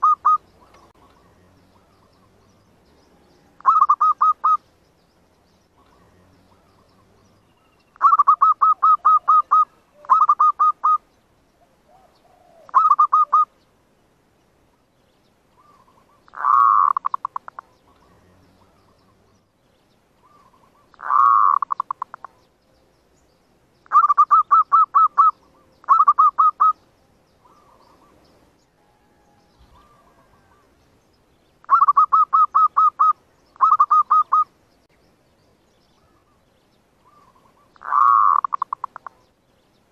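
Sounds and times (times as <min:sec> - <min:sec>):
dove rolling call: 0:00.0 - 0:02.5, 0:03.2 - 0:04.7, 0:08.0 - 0:11.0, 0:11.6 - 0:13.6, 0:15.6 - 0:19.3, 0:20.2 - 0:22.4, 0:23.9 - 0:26.8, 0:27.4 - 0:30.8, 0:31.6 - 0:34.5, 0:37.0 - 0:39.2
dove staccato cooing: 0:00.0 - 0:02.6, 0:03.2 - 0:04.6, 0:08.0 - 0:11.0, 0:11.9 - 0:13.5, 0:15.6 - 0:19.3, 0:20.2 - 0:22.4, 0:23.9 - 0:26.8, 0:31.6 - 0:34.5, 0:37.0 - 0:39.3.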